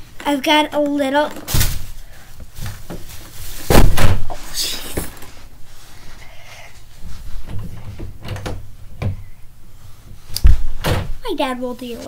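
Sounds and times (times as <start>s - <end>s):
door thudding shut: 10.4s - 11.2s.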